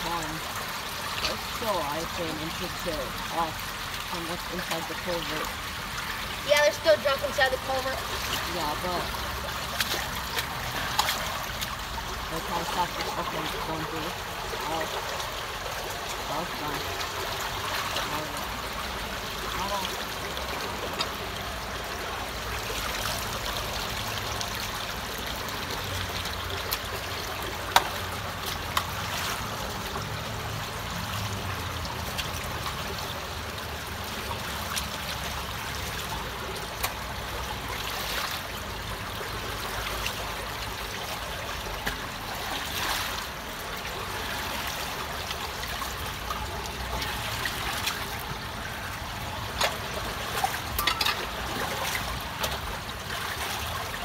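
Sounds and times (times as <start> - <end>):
water trickling through culvert: 0.0 - 54.0.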